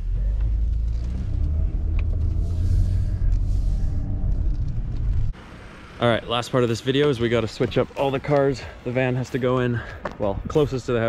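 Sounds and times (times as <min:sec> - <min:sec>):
car interior engine and road noise: 0:00.0 - 0:06.0.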